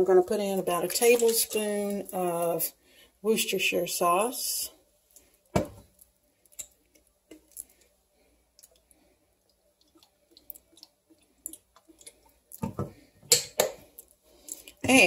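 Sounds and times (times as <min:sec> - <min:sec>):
bottle caps clicking and tapping: 0:12.6 - 0:13.8.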